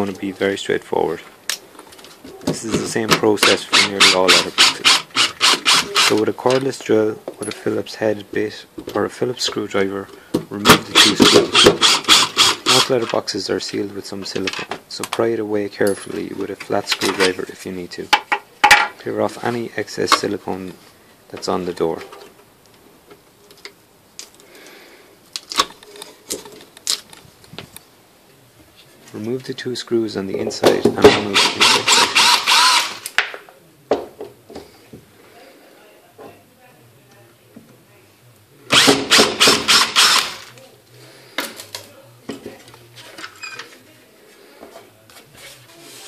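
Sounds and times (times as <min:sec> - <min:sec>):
cordless drill backing out screw: 0:31.4 - 0:33.0, 0:38.7 - 0:40.4.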